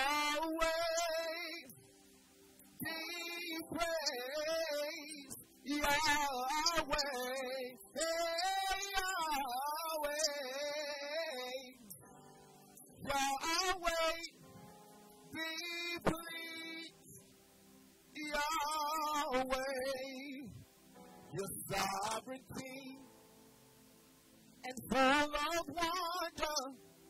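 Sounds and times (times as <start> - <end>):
man singing into a microphone: 0.0 - 1.8, 2.8 - 12.0, 13.0 - 14.4, 15.3 - 17.2, 18.2 - 20.6, 21.3 - 23.1, 24.6 - 26.9.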